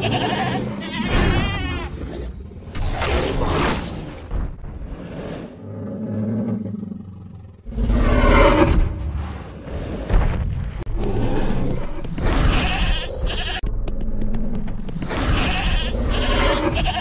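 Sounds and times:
low growl: 4.9s - 9.9s.

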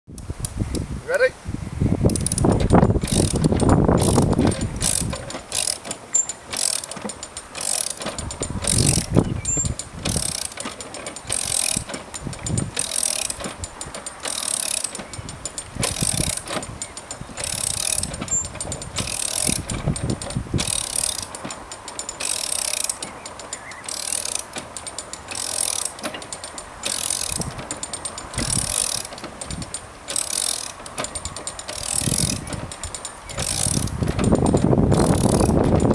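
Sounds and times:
metal ratchet clicking: 2.1s - 35.9s
heavy low knocks: 30.7s - 35.9s.

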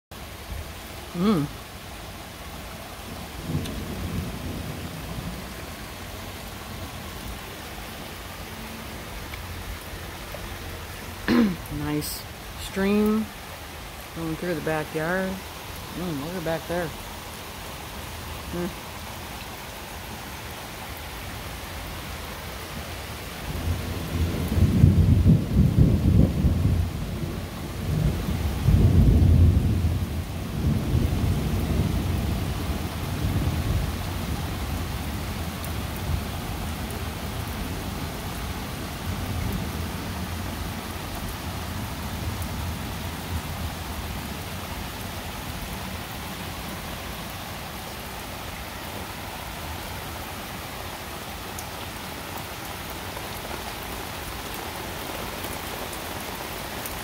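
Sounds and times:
steady rain falling: 0.1s - 57.0s
thunder rolling: 23.5s - 33.8s.

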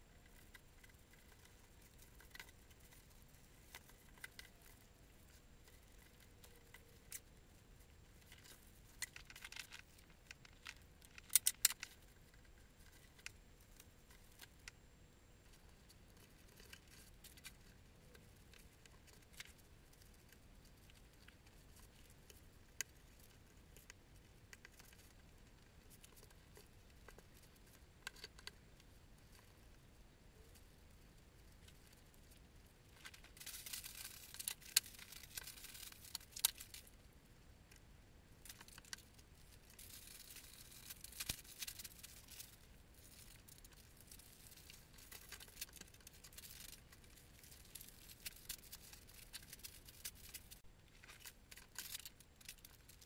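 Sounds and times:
paper crinkling: 38.4s - 53.0s.

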